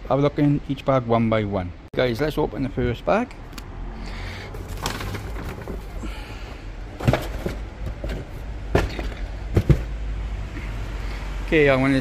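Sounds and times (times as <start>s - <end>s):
paper bag rustling: 4.5s - 6.2s
cardboard box knocks and scrapes: 7.0s - 10.0s.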